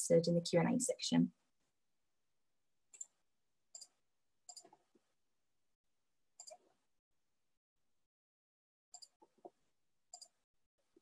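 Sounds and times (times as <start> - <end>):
computer mouse clicks: 2.9 - 3.2, 3.8 - 4.9, 6.4 - 6.8, 9.0 - 10.4.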